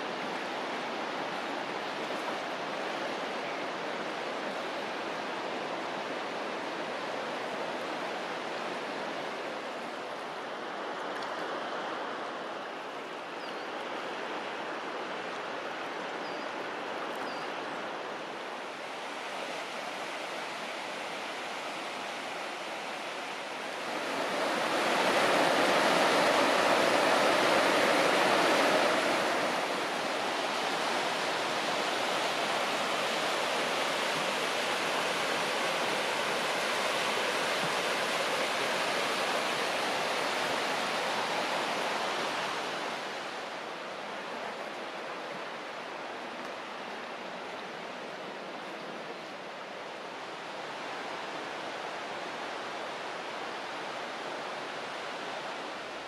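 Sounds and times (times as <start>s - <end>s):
water rushing over rocks: 17.7s - 56.0s.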